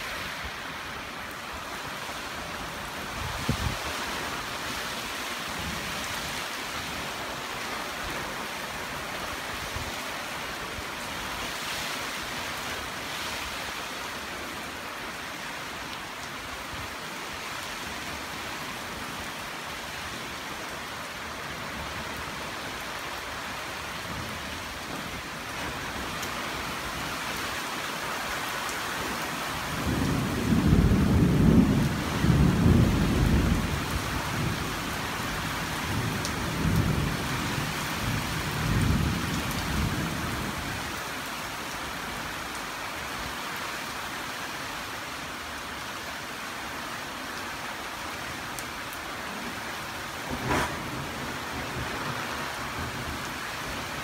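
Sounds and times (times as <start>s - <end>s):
heavy rain hissing: 0.0s - 54.0s
thunder rumbling: 29.8s - 34.7s, 50.2s - 53.3s.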